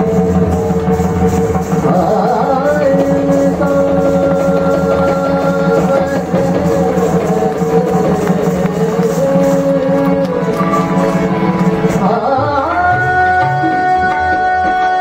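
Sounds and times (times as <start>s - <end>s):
sitar: 0.0s - 15.0s
tabla: 0.0s - 15.0s.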